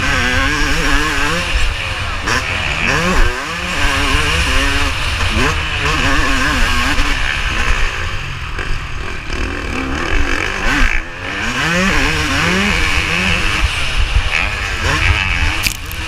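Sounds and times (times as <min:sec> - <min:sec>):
motocross bike engine revving: 0:00.0 - 0:16.0
wind rumble on microphone: 0:11.8 - 0:16.0.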